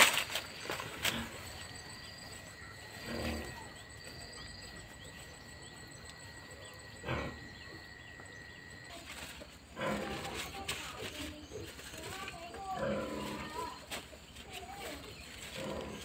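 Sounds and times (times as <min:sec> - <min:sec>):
rustling handling noises: 0:00.0 - 0:02.6, 0:08.9 - 0:16.0.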